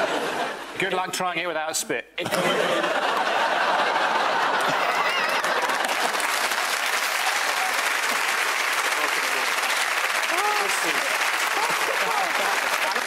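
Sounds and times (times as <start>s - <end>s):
audience laughing: 0.0s - 0.8s, 2.2s - 6.5s, 10.9s - 13.0s
audience applauding: 3.0s - 13.0s.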